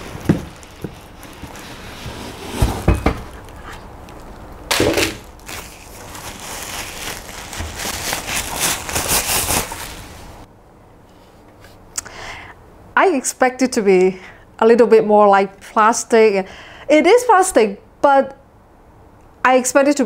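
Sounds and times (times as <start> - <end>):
plastic bag rustling and crinkling: 0.0 - 10.5.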